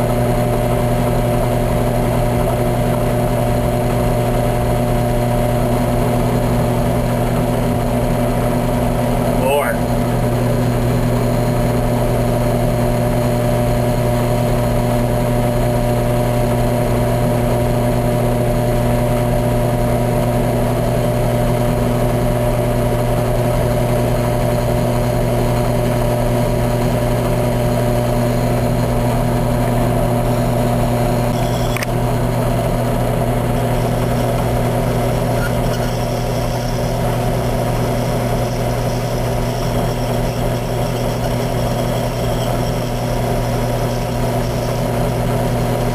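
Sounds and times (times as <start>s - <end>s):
drill press motor running: 0.0s - 45.9s
brief click: 31.4s - 32.0s
blade shaving plastic wheel: 33.2s - 45.9s.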